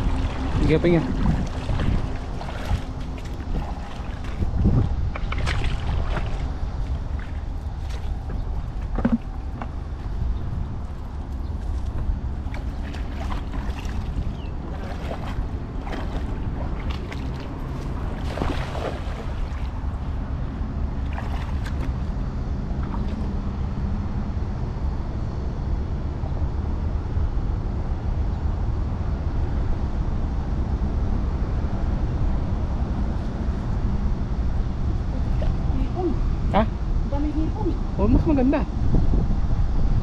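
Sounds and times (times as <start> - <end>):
water splashes: 0.0 - 9.7, 11.9 - 20.3, 21.0 - 23.6
river water lapping: 0.0 - 24.1, 34.9 - 37.7
wind buffeting microphone: 0.0 - 40.0.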